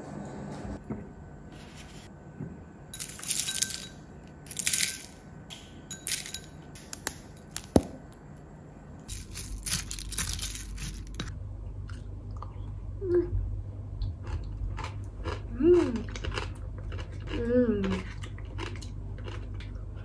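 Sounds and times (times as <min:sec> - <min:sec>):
cereal flakes tipped into bowl: 0:09.1 - 0:11.3.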